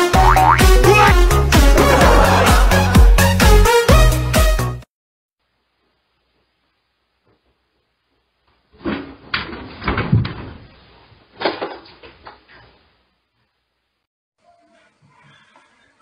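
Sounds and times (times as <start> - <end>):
chair clattering on tiled floor: 8.8 - 10.7, 11.4 - 12.4.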